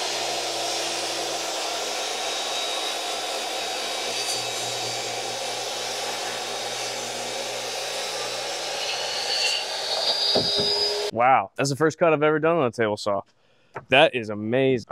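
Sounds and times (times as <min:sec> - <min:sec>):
table saw ripping wood: 0:00.0 - 0:11.1.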